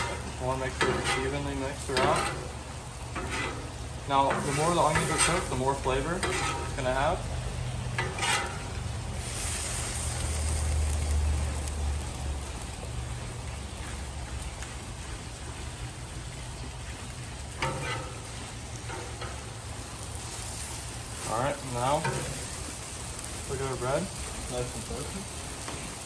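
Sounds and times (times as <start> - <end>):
metal spatulas scraping griddle: 0.0 - 2.6, 3.2 - 7.2, 8.0 - 9.5, 17.6 - 18.3, 21.2 - 22.5
meat and onions sizzling on griddle: 0.0 - 26.0.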